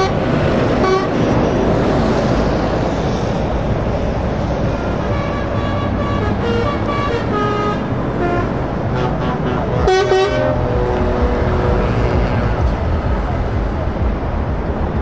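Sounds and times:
loud truck horn blast: 0:00.0 - 0:01.3, 0:04.7 - 0:12.9
truck diesel engines passing: 0:00.0 - 0:15.0.

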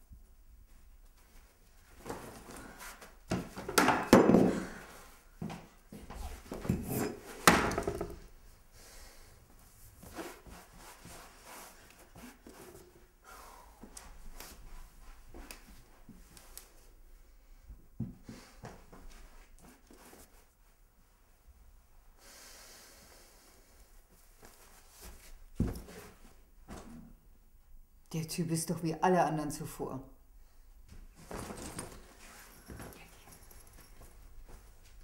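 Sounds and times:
knocks and thumps: 0:06.6 - 0:08.2
handling sounds: 0:31.1 - 0:35.0.

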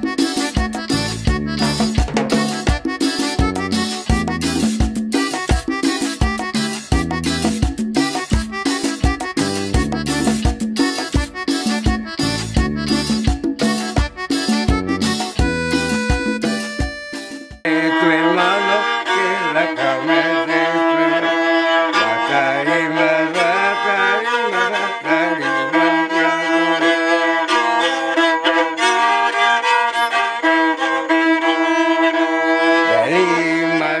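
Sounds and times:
violin melody: 0:13.8 - 0:34.0.

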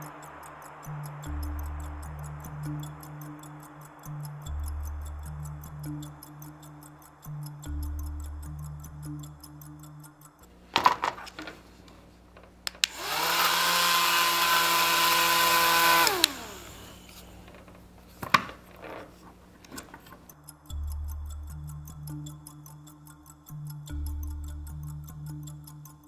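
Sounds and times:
wiring handling clicks: 0:12.3 - 0:20.4
small motor whirring: 0:12.9 - 0:17.5.

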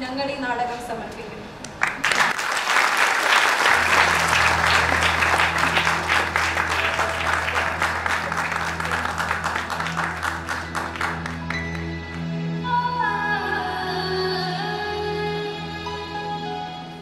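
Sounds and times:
audience applauding: 0:01.8 - 0:12.3
low sustained music notes: 0:03.6 - 0:17.0.

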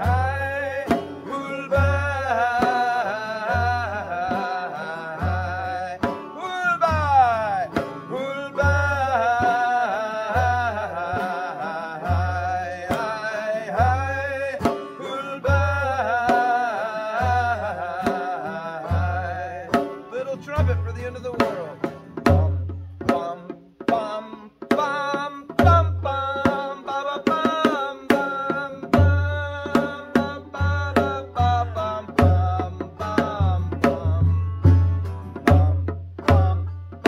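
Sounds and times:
acoustic guitar: 0:00.0 - 0:37.0
banjo: 0:00.0 - 0:37.0
barrel drum deep thumps: 0:18.9 - 0:37.0.

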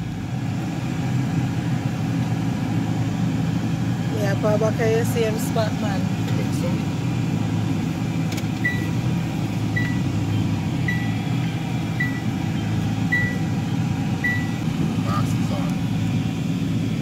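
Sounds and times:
car engine running at low speed: 0:00.0 - 0:17.0
electronic warning beeps: 0:08.6 - 0:08.9, 0:09.7 - 0:14.6.

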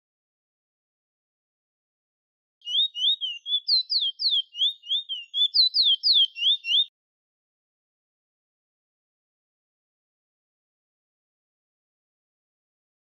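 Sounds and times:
finch singing whistled notes: 0:02.6 - 0:06.9.

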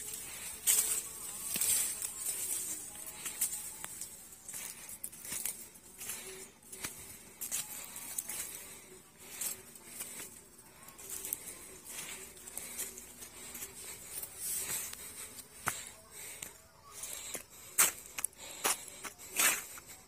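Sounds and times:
footsteps on wet leaves: 0:00.0 - 0:10.3.

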